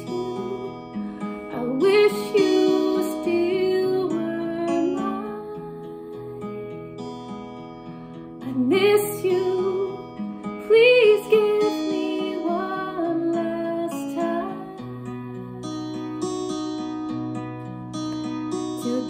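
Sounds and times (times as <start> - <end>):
woman singing: 0.0 - 6.9, 8.4 - 15.8, 18.8 - 19.0
strummed acoustic guitar: 0.0 - 19.0.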